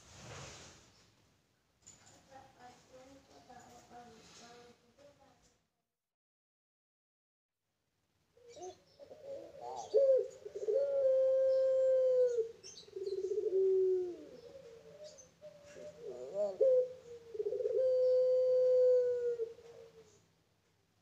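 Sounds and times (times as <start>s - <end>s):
dove cooing: 8.4s - 20.2s.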